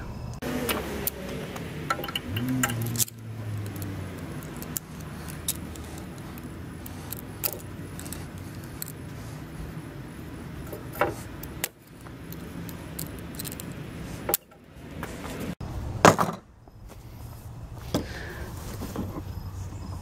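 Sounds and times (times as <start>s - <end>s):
steady low hum: 0.0s - 15.9s
metal hooks and pliers clinking: 1.9s - 9.0s, 10.7s - 14.6s.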